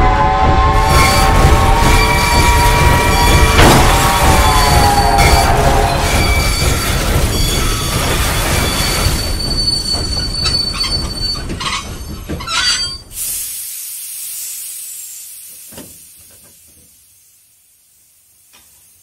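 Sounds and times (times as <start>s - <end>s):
train rumbling: 0.0s - 13.7s
steel wheels squealing: 0.8s - 13.2s
hiss: 13.1s - 19.0s.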